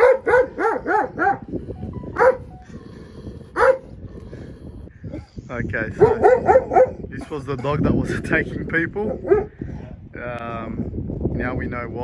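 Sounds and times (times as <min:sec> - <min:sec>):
dog barking: 0:00.0 - 0:01.5, 0:02.2 - 0:02.5, 0:03.6 - 0:03.9, 0:06.0 - 0:07.0, 0:09.1 - 0:09.5.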